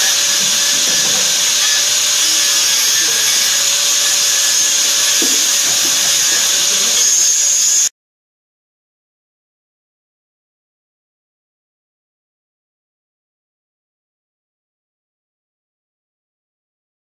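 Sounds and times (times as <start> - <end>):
angle grinder grinding metal: 0.0 - 7.9.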